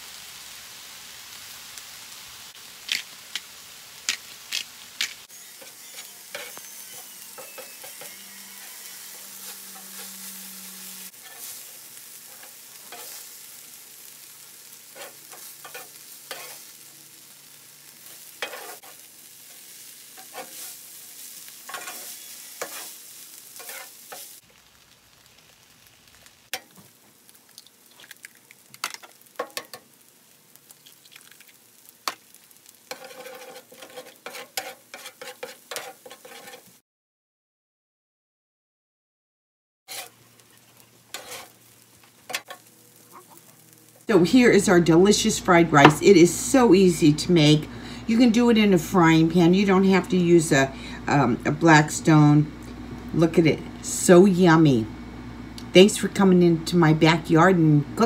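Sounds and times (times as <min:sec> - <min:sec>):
food sizzling on a griddle: 0:00.0 - 0:36.8, 0:39.9 - 0:58.0
metal spatula scraping and tapping: 0:05.5 - 0:10.4, 0:11.2 - 0:13.3, 0:15.0 - 0:16.6, 0:18.1 - 0:19.6, 0:20.2 - 0:20.8, 0:21.7 - 0:23.0, 0:23.6 - 0:24.3, 0:28.8 - 0:29.8, 0:32.9 - 0:36.8, 0:39.9 - 0:40.5, 0:41.1 - 0:41.6, 0:42.3 - 0:42.7.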